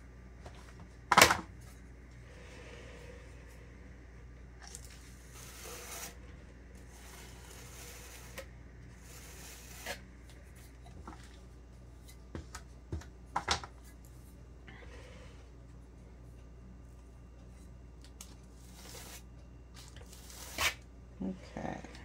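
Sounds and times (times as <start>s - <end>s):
scraper scraping buttercream: 5.0s - 10.0s, 18.5s - 20.8s.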